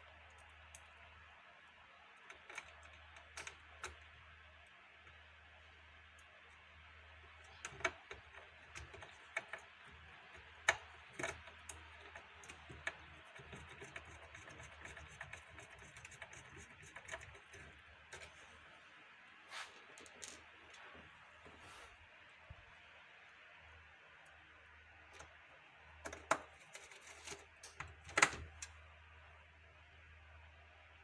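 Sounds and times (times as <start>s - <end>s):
plastic frame being handled: 26.0s - 28.6s.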